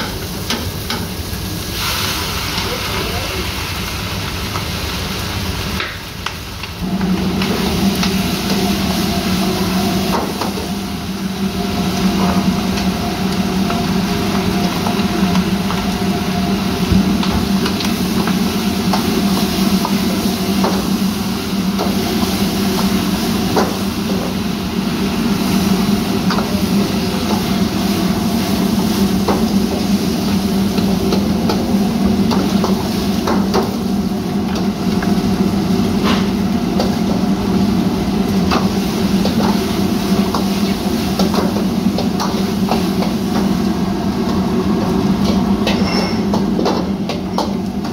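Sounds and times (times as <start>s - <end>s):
food frying sizzle: 0.0s - 47.9s
gas burner roaring: 0.0s - 47.9s
metal ladles clanking in woks: 45.6s - 47.7s.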